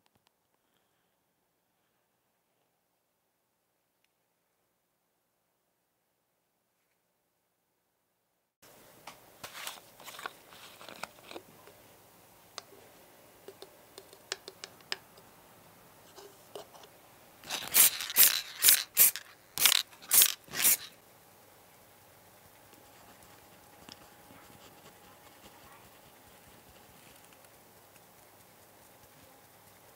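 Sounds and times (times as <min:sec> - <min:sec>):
short scratchy rasps: 0:17.4 - 0:21.0.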